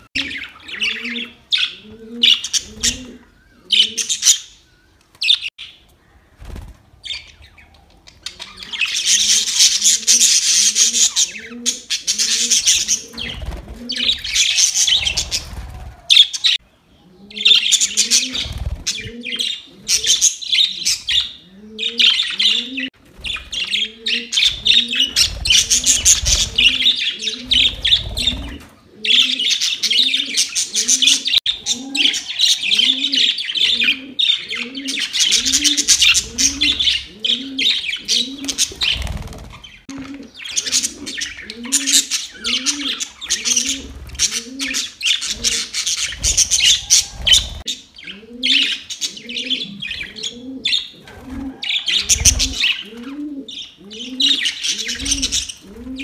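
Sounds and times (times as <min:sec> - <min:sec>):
low cooing call: 0:23.8 - 0:38.6, 0:46.6 - 0:56.0
budgerigars chattering and warbling: 0:40.4 - 0:50.9.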